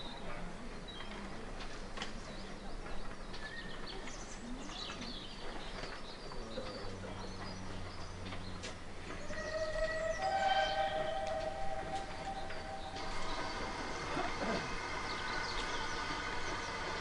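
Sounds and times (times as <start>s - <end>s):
small birds chirping: 2.2s - 13.8s.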